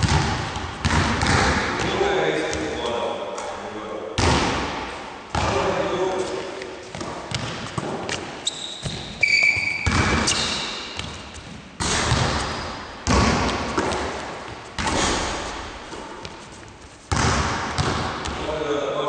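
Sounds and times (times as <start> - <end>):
basketballs thudding on wooden floor: 0.0 - 2.8, 4.2 - 5.8, 6.9 - 16.4, 17.1 - 18.5
sneaker squeak on court: 8.4 - 11.1.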